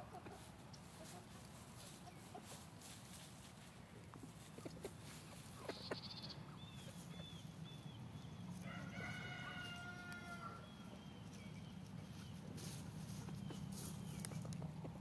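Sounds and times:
chickens chirping: 0.0 - 15.0
rooster crowing: 8.6 - 10.7.

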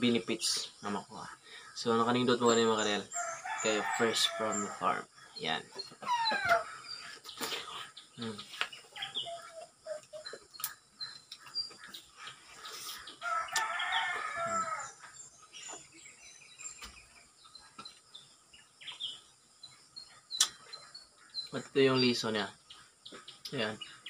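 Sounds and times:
small birds chirping: 0.0 - 24.0
rooster crowing: 3.1 - 4.9, 13.2 - 15.0.

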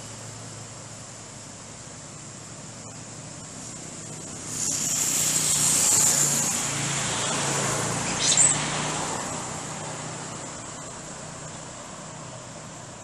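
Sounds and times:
vehicle passing on road: 1.9 - 13.0
short high squeal: 4.5 - 6.6, 8.1 - 8.7.

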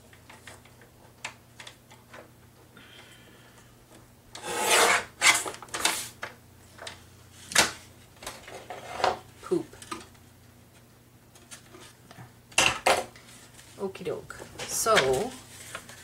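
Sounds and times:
paper sheets rustling: 14.8 - 16.0.

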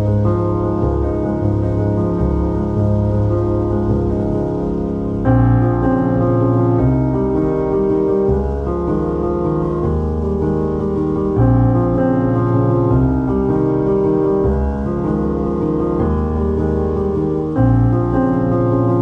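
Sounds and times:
deep bass: 0.0 - 19.0
piano playing slow chords: 0.0 - 19.0.

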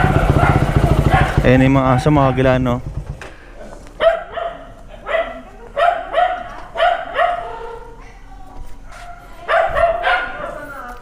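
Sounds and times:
dogs barking: 0.0 - 2.6, 4.0 - 7.9, 8.9 - 10.6.

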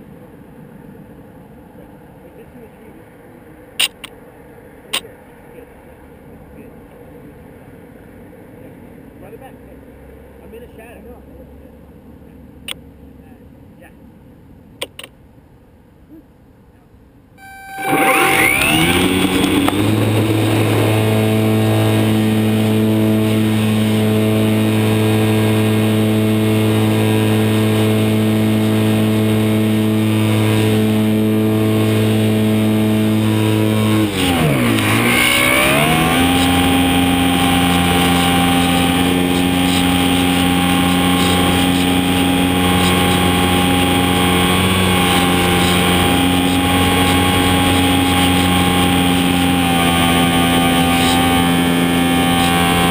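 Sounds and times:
model airplane electric motor: 17.4 - 52.9.

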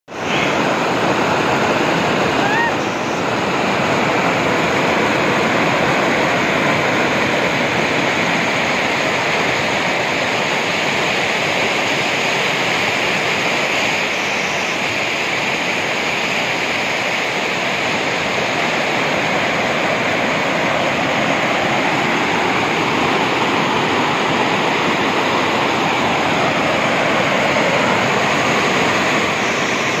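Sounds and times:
waterfall rushing: 0.1 - 30.0.

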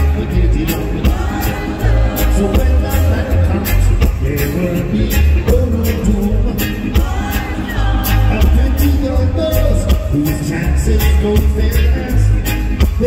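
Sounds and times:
heavy bass: 0.0 - 13.0
man singing into microphone: 0.0 - 13.0
reggae band playing: 0.0 - 13.0.

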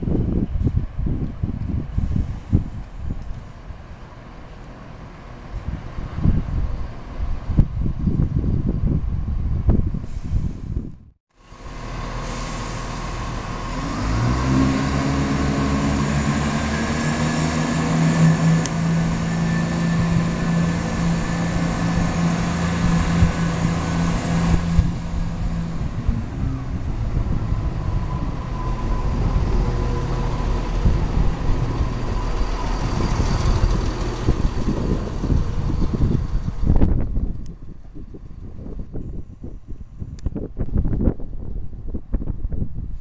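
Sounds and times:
diesel train engines droning: 0.0 - 7.6, 8.8 - 41.1
train wheels rumbling on rails: 9.8 - 41.2.

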